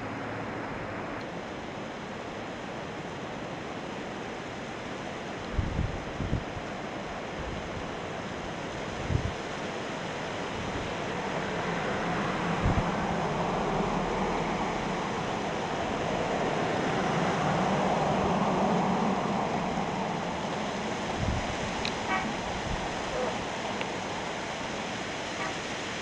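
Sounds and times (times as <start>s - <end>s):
wind on microphone: 5.5s - 6.6s, 8.9s - 9.4s, 10.5s - 15.0s, 15.8s - 24.5s.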